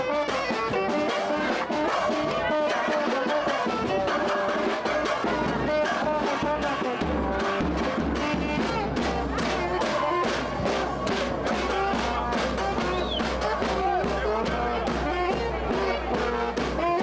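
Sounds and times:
bass drum: 0.0s - 17.0s
street band playing festive music: 0.0s - 17.0s.

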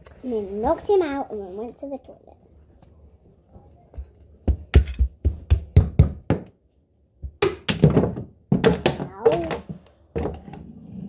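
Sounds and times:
toy doll knocking on dollhouse: 4.5s - 6.5s, 7.2s - 10.4s.

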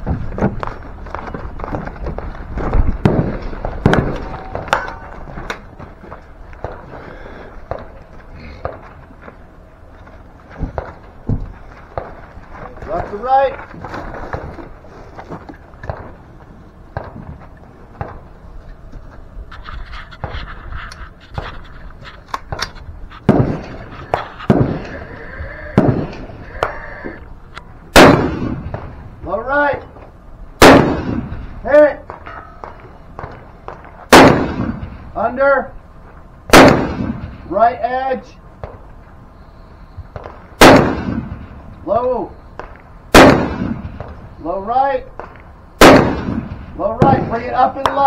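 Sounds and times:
boots running on dirt and concrete: 0.0s - 4.6s
rifle shots with echo: 23.2s - 25.0s, 25.8s - 26.3s, 27.9s - 29.0s, 30.6s - 33.4s, 34.1s - 35.2s, 36.5s - 37.5s, 40.2s - 41.6s, 42.6s - 44.2s, 45.2s - 48.0s.

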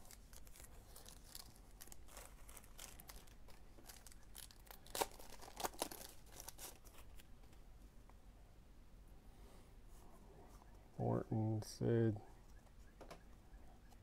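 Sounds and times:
trading cards rustling: 0.0s - 7.3s.

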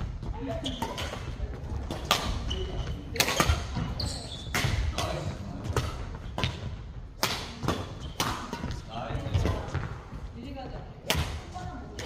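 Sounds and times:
shoe squeaks on court floor: 2.3s - 4.6s.

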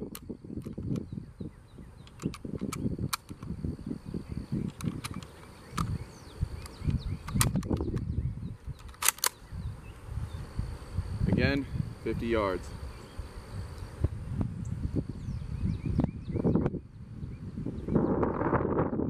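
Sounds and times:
wind rumbling on microphone: 0.0s - 19.0s
cartridges clicking into magazine: 2.0s - 3.5s, 4.7s - 5.9s, 6.6s - 8.0s, 8.8s - 9.4s.

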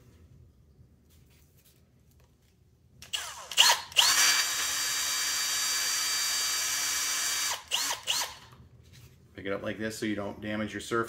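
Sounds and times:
cordless drill whining: 3.0s - 8.6s.

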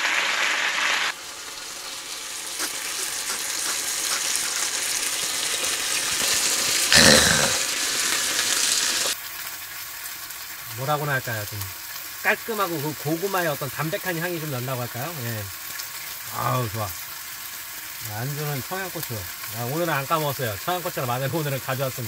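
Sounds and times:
steak sizzling in a pan: 0.0s - 22.0s
short vocal sound: 6.9s - 7.7s.

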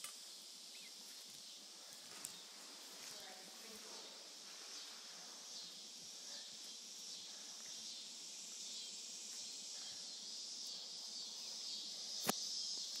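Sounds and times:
high-pitched insect chorus: 0.0s - 13.0s
sharp click: 12.2s - 12.4s.

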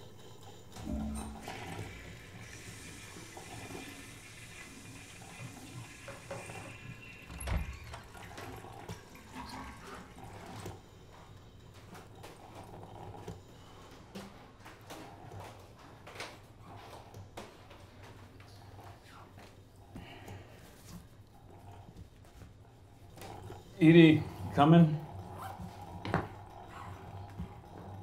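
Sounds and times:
water running: 0.6s - 13.1s, 22.7s - 28.0s.

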